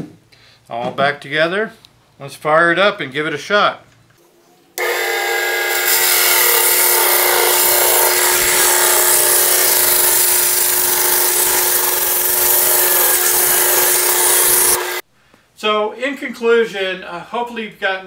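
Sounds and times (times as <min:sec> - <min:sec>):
band saw motor hum: 0:04.8 - 0:15.0.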